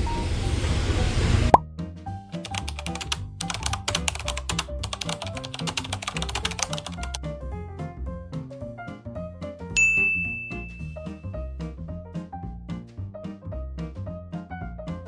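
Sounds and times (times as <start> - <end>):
background music with bass line: 1.4 - 15.0
rapid typing-like clicks: 2.4 - 7.2.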